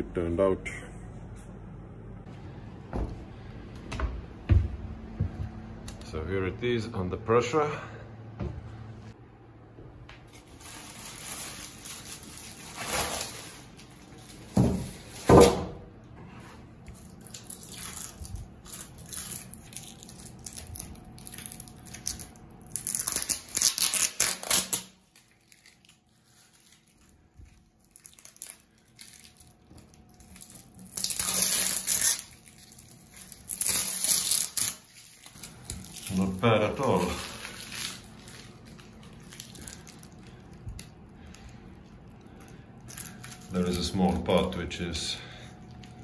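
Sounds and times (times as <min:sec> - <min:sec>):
heavy thumps: 0:02.8 - 0:05.8
plastic bags crinkling: 0:10.2 - 0:15.5, 0:16.9 - 0:46.0.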